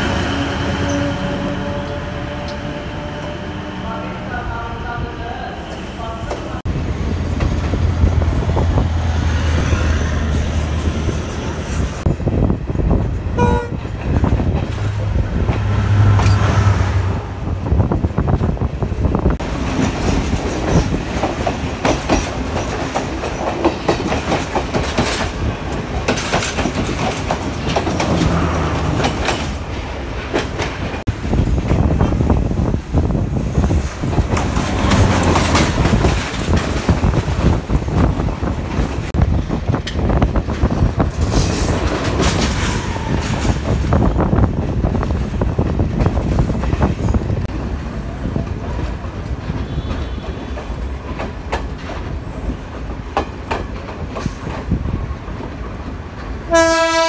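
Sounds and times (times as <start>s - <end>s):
train rail rumble: 0.0s - 57.0s
clickety-clack of train wheels: 7.1s - 8.9s, 12.0s - 16.7s, 17.9s - 57.0s.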